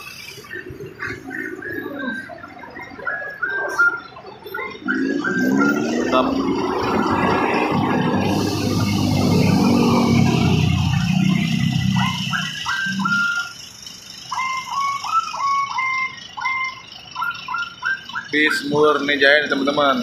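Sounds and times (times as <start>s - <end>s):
bus diesel engine passing: 0.0s - 20.0s
small bird chirping: 9.9s - 19.1s.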